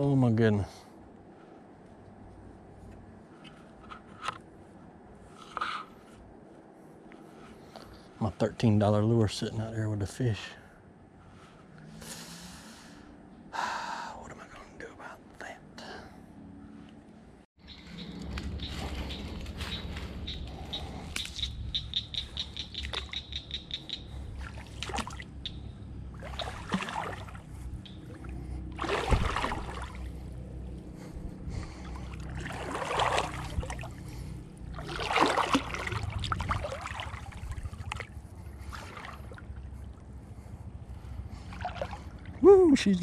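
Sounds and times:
rapid high ticks: 17.7s - 24.1s
water sloshing around legs: 22.4s - 31.1s, 31.7s - 42.4s
breathing close to microphone: 30.8s - 32.2s.

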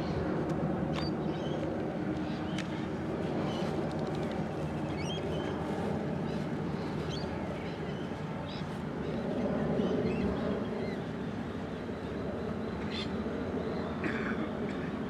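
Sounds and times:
model airplane propellers droning: 0.0s - 15.0s.

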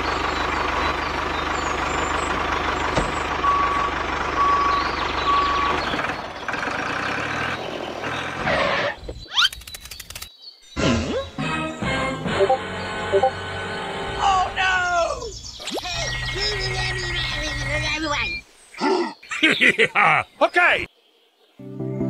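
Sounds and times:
vehicle rumble: 0.0s - 9.3s, 12.3s - 18.4s
reversing alarm beeps: 3.4s - 5.9s.

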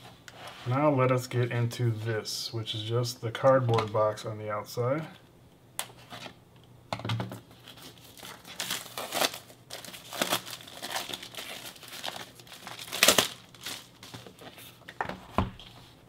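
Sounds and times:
plastic wrap crinkling and tearing: 7.5s - 14.9s
knife slitting plastic wrap: 7.7s - 14.2s.

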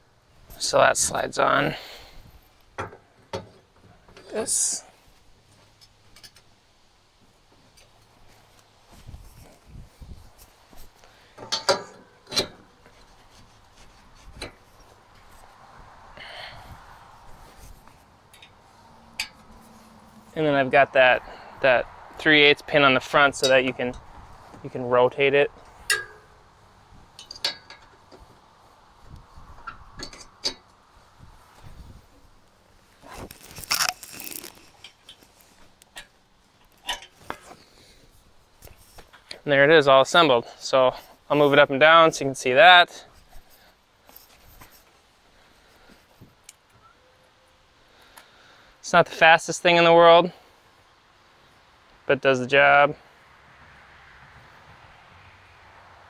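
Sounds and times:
scraping rustle: 7.2s - 21.5s, 22.2s - 39.4s, 43.0s - 47.4s
metal parts clanking: 11.4s - 12.8s, 25.7s - 26.4s, 27.2s - 28.0s, 33.2s - 35.3s
metal clicks and clinks: 25.8s - 26.4s, 27.2s - 28.2s.

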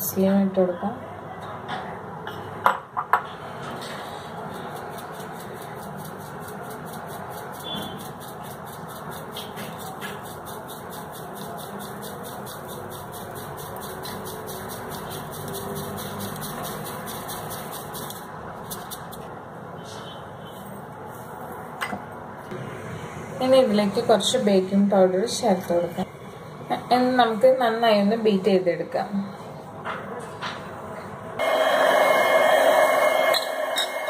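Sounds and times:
sieve shaking rustling hiss: 3.9s - 19.1s.

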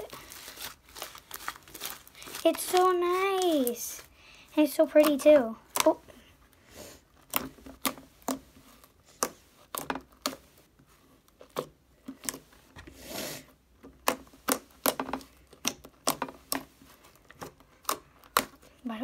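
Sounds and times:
slime squish: 0.0s - 19.0s
slime clicking and popping: 7.2s - 8.4s, 14.0s - 16.7s, 17.3s - 18.7s.

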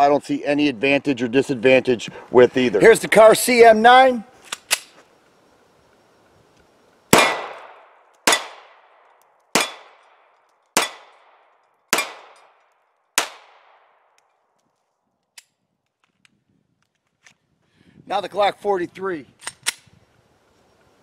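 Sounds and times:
pistol shots: 7.1s - 12.6s, 13.2s - 14.1s.

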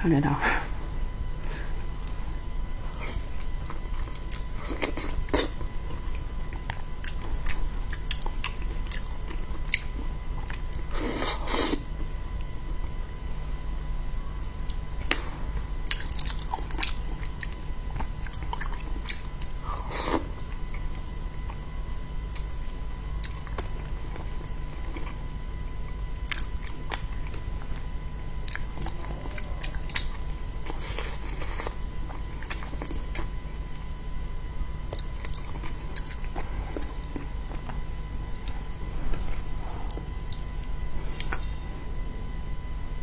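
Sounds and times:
steady low hum: 0.0s - 43.0s
close-miked chewing and biting: 3.0s - 10.9s, 15.8s - 21.6s, 23.1s - 25.3s, 26.2s - 33.4s, 34.9s - 41.5s.

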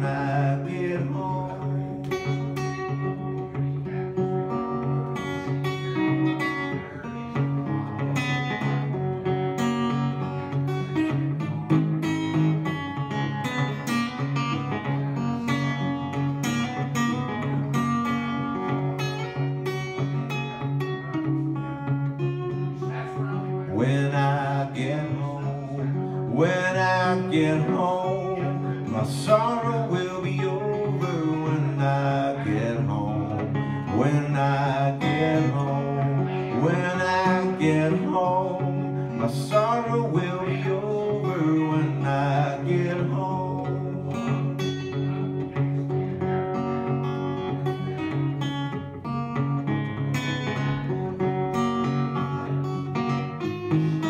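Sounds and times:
man singing: 0.0s - 4.0s, 22.8s - 46.0s
acoustic guitar picking: 0.0s - 54.0s.

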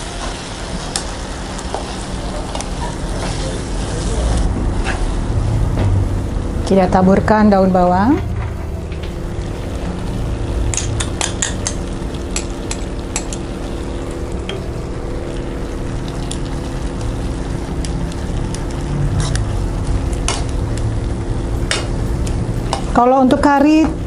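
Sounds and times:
sauce sizzling in frying pan: 0.0s - 8.0s, 9.0s - 24.0s
low hum: 4.3s - 22.9s
metal tongs clicking on pan: 10.7s - 13.4s.

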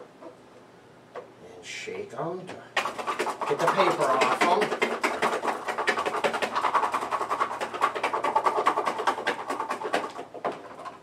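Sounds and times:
garlic rattling in plastic container: 2.8s - 11.0s.

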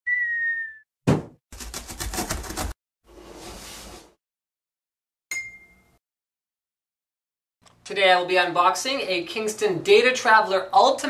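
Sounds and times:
loud thud of box landing: 1.1s - 1.4s.

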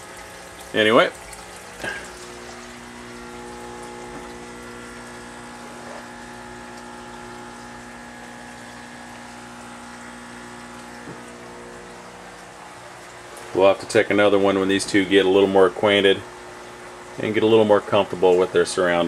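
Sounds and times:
water hissing: 0.0s - 13.8s
aquarium pumps humming: 0.0s - 19.0s.

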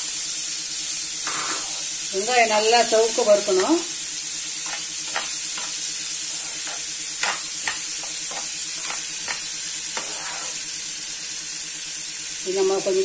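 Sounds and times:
onions sizzling in oil: 0.0s - 13.0s
metal spoon scraping pan: 4.6s - 10.7s.

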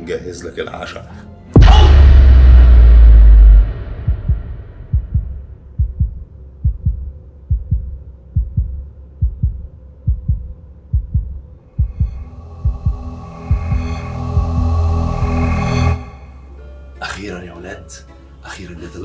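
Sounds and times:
heartbeat thumps: 1.6s - 16.0s.

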